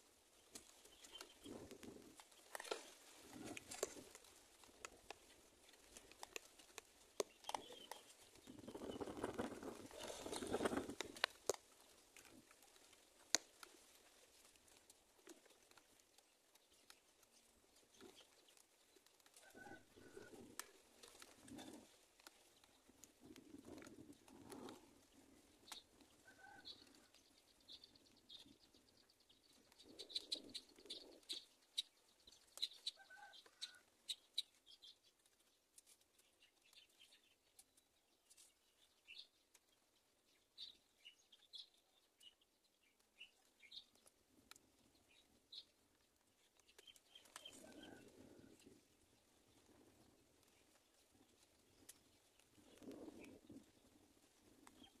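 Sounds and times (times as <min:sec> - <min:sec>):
birds chirping: 0:07.2 - 0:11.3, 0:24.4 - 0:35.1.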